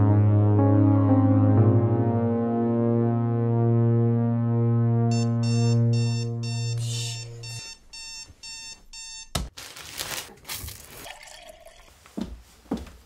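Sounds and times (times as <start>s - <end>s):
alarm clock click: 5.1s - 9.4s
digital alarm clock beeping: 5.1s - 9.4s.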